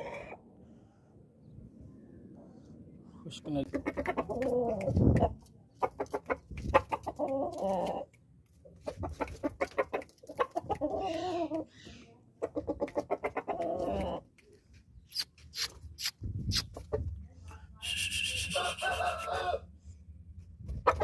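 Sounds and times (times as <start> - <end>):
rooster clucking: 3.6 - 11.8, 12.4 - 14.3, 15.1 - 17.2, 17.8 - 19.7
rooster wavering calls: 18.4 - 19.7.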